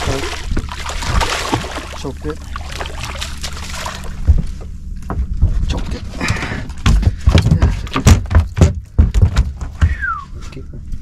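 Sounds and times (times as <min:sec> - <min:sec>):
fish splashing at water surface: 0:00.0 - 0:04.3
fish flopping on deck: 0:00.0 - 0:10.2.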